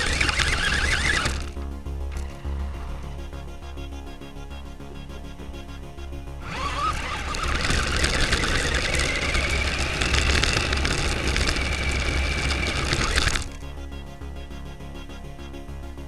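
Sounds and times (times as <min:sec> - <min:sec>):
tyres crunching on gravel: 0:00.0 - 0:01.6, 0:06.4 - 0:13.6
electric motor and gears whining: 0:00.0 - 0:03.6, 0:06.4 - 0:14.0.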